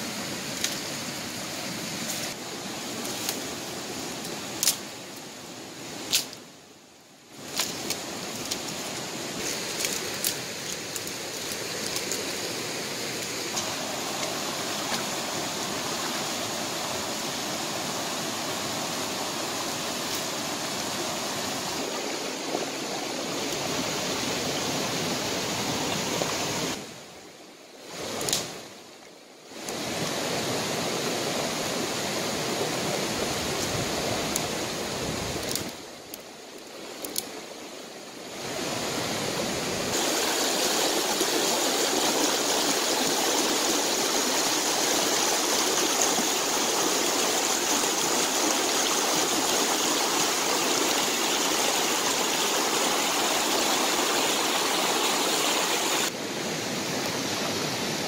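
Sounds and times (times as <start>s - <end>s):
stream rushing over stones: 0.0s - 6.6s, 7.3s - 27.2s, 27.8s - 28.8s, 29.5s - 58.0s
dry twigs snapping: 4.6s - 4.8s, 7.5s - 8.8s, 9.5s - 12.2s, 35.4s - 36.2s.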